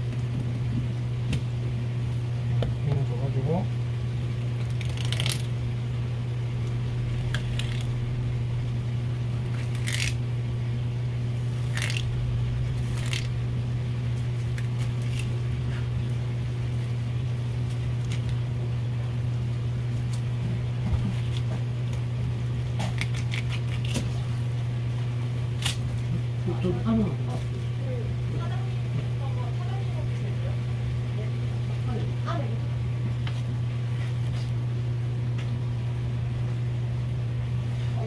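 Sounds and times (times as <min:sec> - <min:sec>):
steady low hum: 0:00.0 - 0:38.0
knife scraping fish bones: 0:04.6 - 0:05.5, 0:09.5 - 0:10.2, 0:11.6 - 0:12.1.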